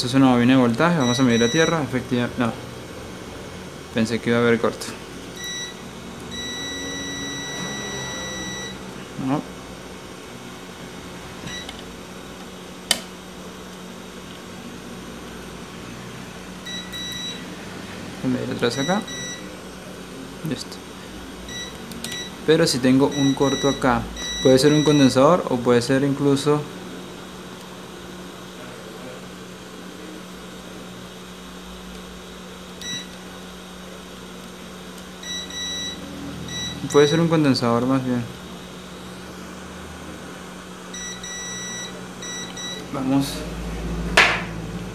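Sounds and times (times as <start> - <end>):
steady low hum: 0.0 - 44.9
multimeter beep: 1.0 - 1.8, 5.4 - 8.8, 11.4 - 11.8, 16.6 - 17.4, 18.7 - 19.5, 21.5 - 22.4, 23.0 - 25.2, 32.8 - 33.2, 35.2 - 37.3, 40.9 - 42.9.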